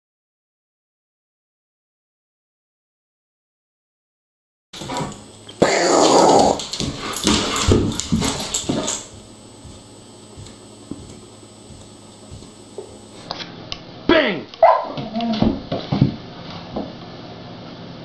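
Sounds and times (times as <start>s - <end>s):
dog growling and whining: 5.6s - 6.8s, 14.8s - 15.5s.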